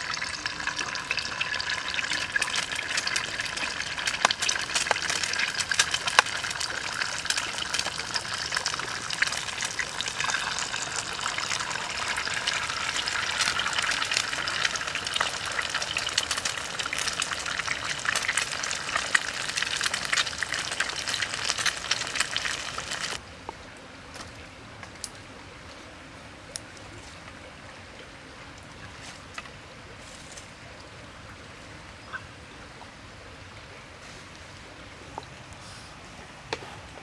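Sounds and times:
eggs sizzling in hot oil: 0:00.0 - 0:23.2.

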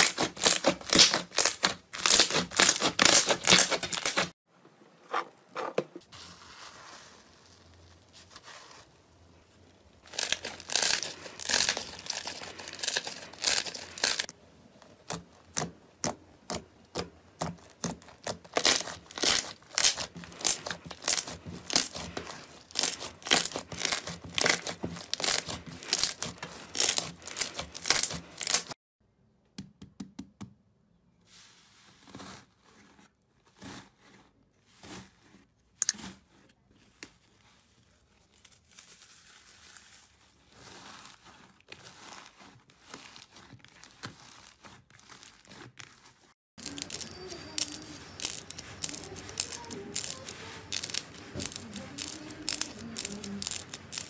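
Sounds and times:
slime crackling and popping: 0:00.0 - 0:04.3, 0:10.0 - 0:28.8, 0:41.1 - 0:54.0
crunchy slime crunching: 0:00.0 - 0:04.4, 0:06.2 - 0:28.8, 0:37.4 - 0:54.0.

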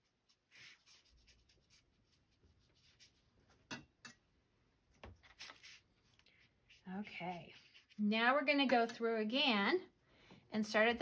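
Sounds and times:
brush scratching on paper: 0:00.0 - 0:03.6, 0:05.0 - 0:08.5.

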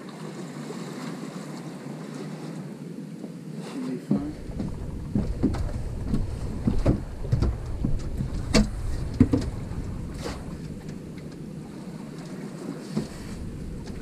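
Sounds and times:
boat knocks and clunks: 0:04.0 - 0:14.0
wind rumbling on microphone: 0:04.1 - 0:14.0.

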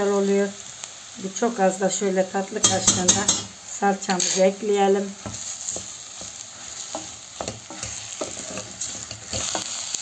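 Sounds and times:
onions frying in oil: 0:00.0 - 0:10.0
spoon knocking and scraping pot: 0:05.2 - 0:09.7.

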